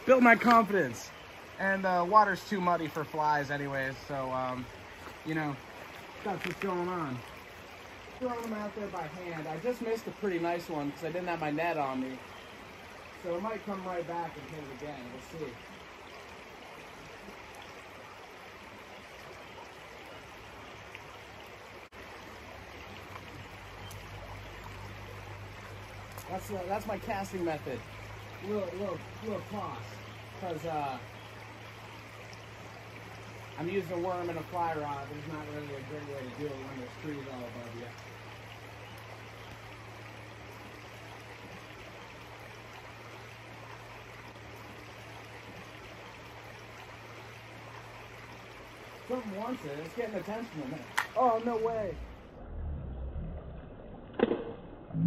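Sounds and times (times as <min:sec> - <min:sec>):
creek water running: 0:00.0 - 0:55.0
low hum: 0:52.0 - 0:55.0
low rumble: 0:52.0 - 0:55.0.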